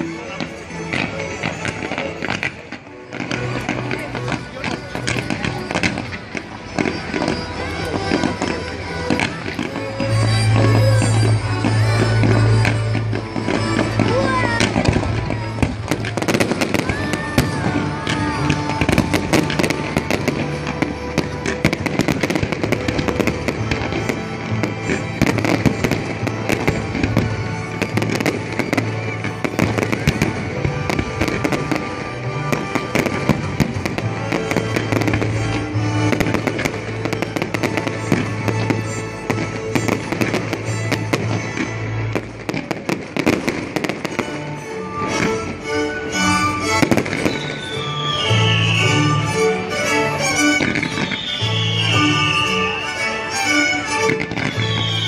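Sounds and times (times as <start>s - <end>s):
fireworks bangs and crackling: 0.0s - 55.0s.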